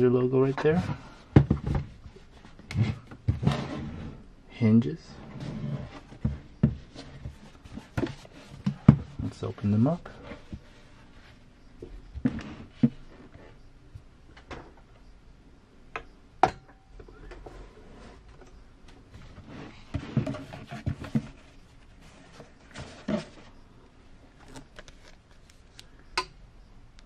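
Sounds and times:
bumps and rustles: 0:05.3 - 0:14.8, 0:17.2 - 0:23.6.

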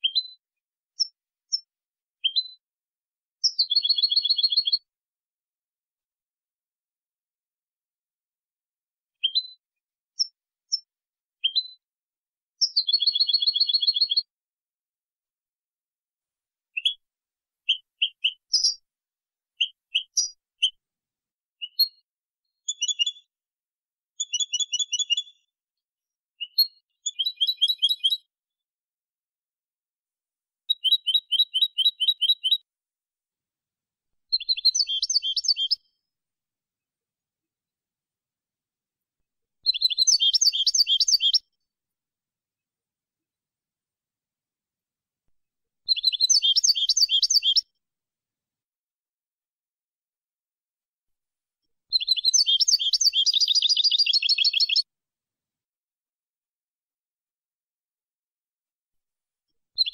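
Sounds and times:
goldfinch chirping trills: 0:03.4 - 0:04.8, 0:12.6 - 0:14.2, 0:17.7 - 0:18.8, 0:19.6 - 0:20.8, 0:22.6 - 0:23.3, 0:24.2 - 0:25.4, 0:26.4 - 0:28.3, 0:30.7 - 0:32.6, 0:34.3 - 0:35.9, 0:39.7 - 0:41.5, 0:45.9 - 0:47.6, 0:51.9 - 0:54.8.

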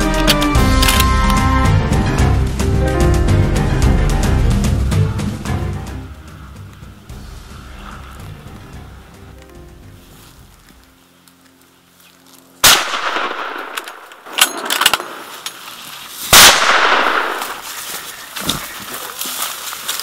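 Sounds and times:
rifle shots with rolling echo: 0:12.6 - 0:15.3, 0:16.3 - 0:17.6.

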